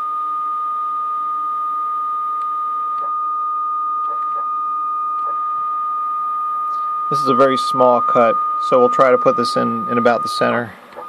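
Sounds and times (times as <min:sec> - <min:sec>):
stepper motors whining: 0:04.0 - 0:11.0.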